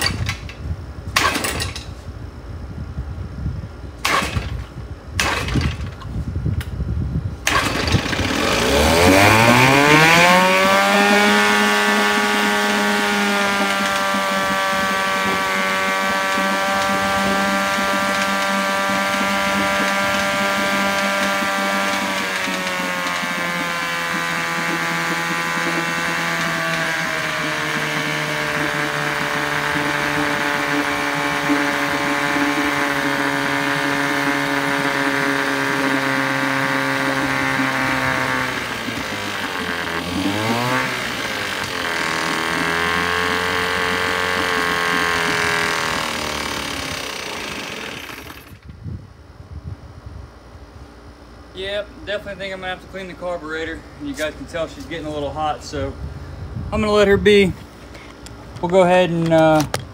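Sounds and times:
outboard motor running in water: 0:07.4 - 0:48.7.

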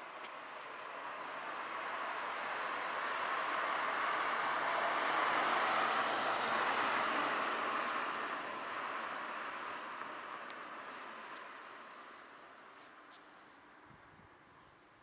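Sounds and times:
vehicle passing: 0:00.9 - 0:11.3.

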